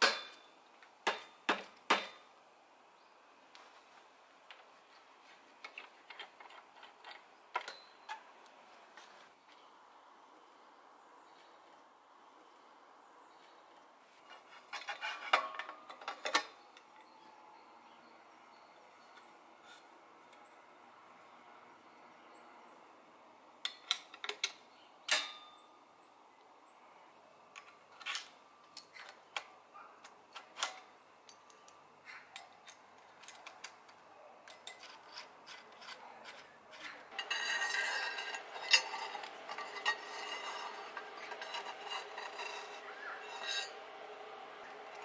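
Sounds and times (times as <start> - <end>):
metal bike parts clicking: 5.6 - 8.3, 30.3 - 43.8
rubbing and clattering: 14.2 - 16.5, 34.5 - 45.0.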